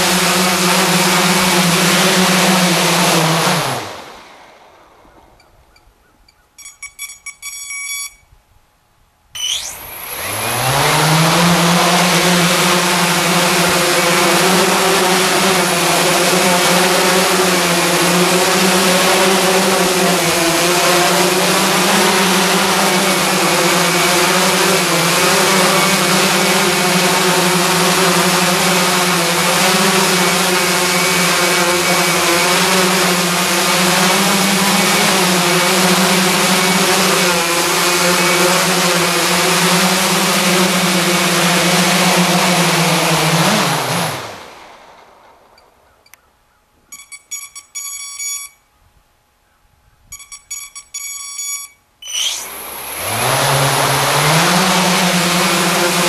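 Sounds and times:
drone motors and propellers: 0:00.0 - 0:05.8, 0:09.4 - 0:46.2, 0:50.1 - 0:56.0
quick beeps: 0:06.6 - 0:08.3, 0:46.9 - 0:48.6, 0:50.1 - 0:52.4.

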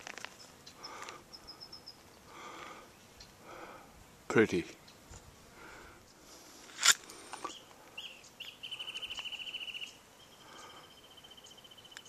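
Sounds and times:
songbird chirping and trilling: 0:02.9 - 0:03.4, 0:04.8 - 0:05.1, 0:07.5 - 0:12.0.

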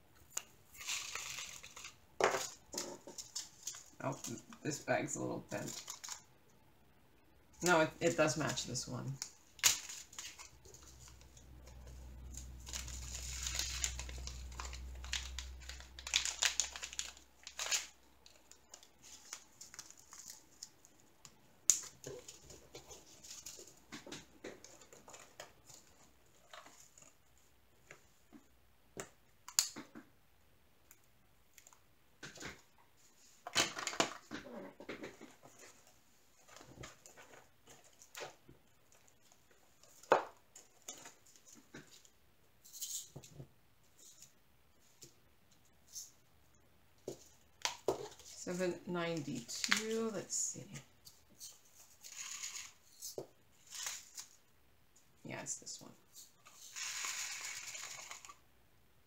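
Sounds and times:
plastic bags rustling and crinkling: 0:00.7 - 0:06.3, 0:07.7 - 0:21.1, 0:56.4 - 0:58.4.

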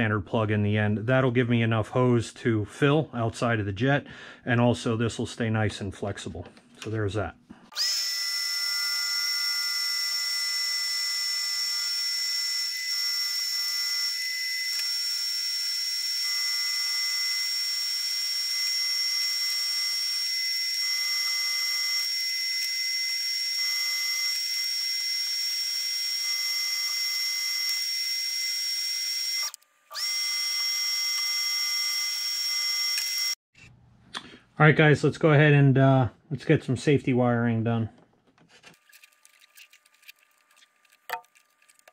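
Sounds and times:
heat gun whining: 0:07.7 - 0:33.4.

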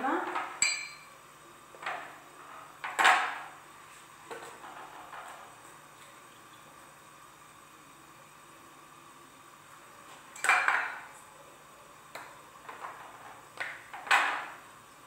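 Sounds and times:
kitchenware clinking: 0:00.3 - 0:01.2, 0:10.3 - 0:11.1.

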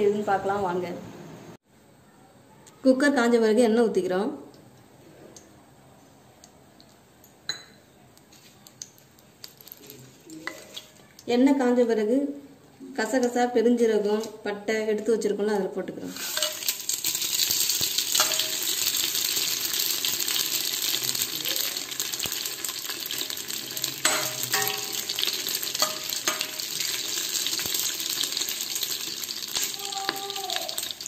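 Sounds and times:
spices sizzling in hot oil: 0:08.6 - 0:11.1, 0:16.1 - 0:31.0
ladle ringing against steel pot: 0:18.2 - 0:18.6, 0:24.0 - 0:26.7.

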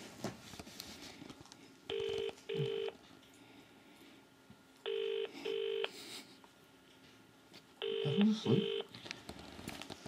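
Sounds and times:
telephone ringing tone: 0:01.9 - 0:03.0, 0:04.8 - 0:05.9, 0:07.8 - 0:08.9.

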